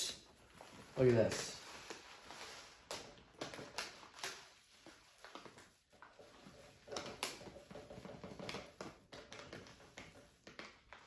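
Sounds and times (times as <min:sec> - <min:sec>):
soft rustling: 0:00.3 - 0:09.0.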